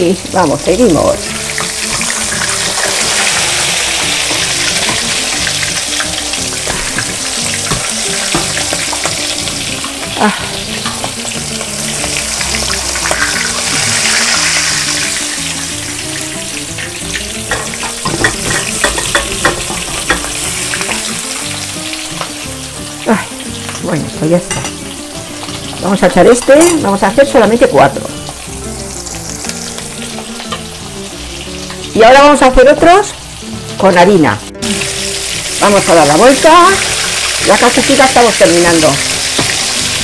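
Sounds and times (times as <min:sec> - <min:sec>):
meat sizzling in hot oil: 0:00.0 - 0:40.0
metal forks clicking on pan: 0:17.5 - 0:21.0.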